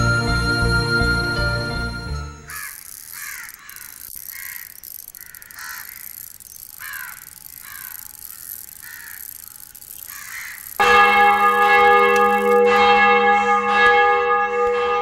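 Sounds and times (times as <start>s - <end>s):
crows cawing: 2.5s - 12.6s.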